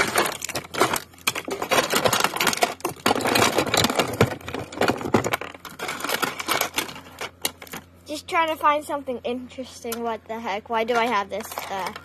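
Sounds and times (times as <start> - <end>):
plastic toys clattering: 0.0 - 7.9, 10.8 - 12.0.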